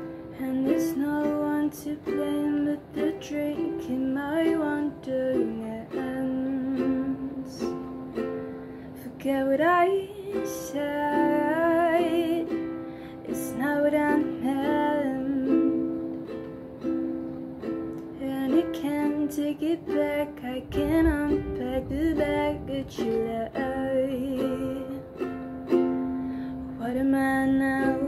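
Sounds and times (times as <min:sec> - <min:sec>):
woman singing: 0:00.0 - 0:08.0, 0:08.9 - 0:16.4, 0:18.0 - 0:25.4, 0:26.0 - 0:28.0
ukulele strumming: 0:00.0 - 0:28.0.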